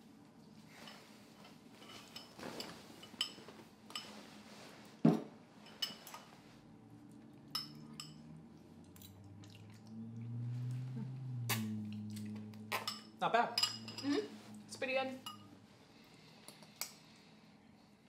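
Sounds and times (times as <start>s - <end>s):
forks and spoons clinking on bowls: 1.8s - 4.2s, 5.6s - 6.2s, 7.5s - 8.3s, 12.7s - 14.3s.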